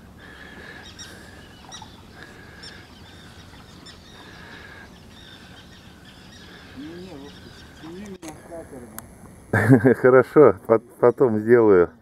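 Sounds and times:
small birds chirping: 0.0s - 9.5s.

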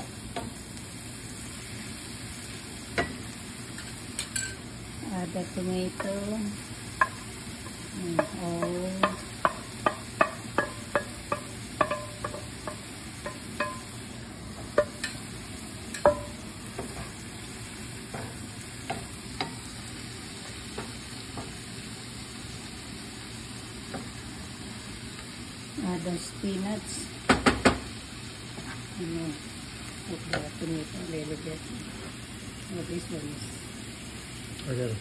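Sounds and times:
low sizzle: 0.0s - 35.0s
spoon tapping pan: 0.3s - 0.6s, 2.9s - 4.6s, 5.9s - 15.3s, 15.9s - 17.2s, 18.0s - 21.6s, 30.3s - 30.6s.

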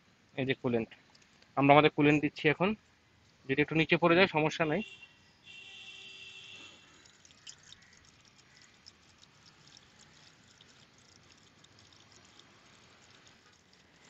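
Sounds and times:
small drips and ticks: 0.0s - 1.6s, 2.8s - 3.5s, 5.4s - 14.0s
liquid pouring into radiator: 6.8s - 14.0s.

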